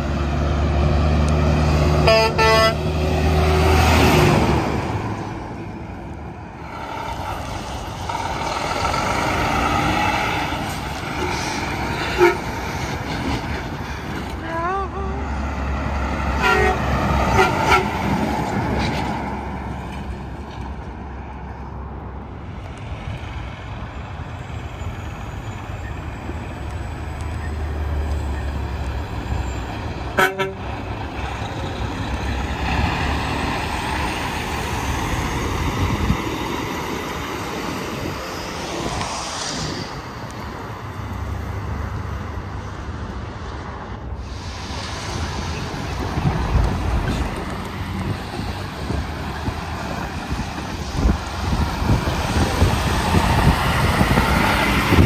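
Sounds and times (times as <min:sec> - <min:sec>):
highway traffic rumble: 0:00.0 - 0:55.0
short horn toots: 0:02.0 - 0:02.8, 0:12.1 - 0:12.5.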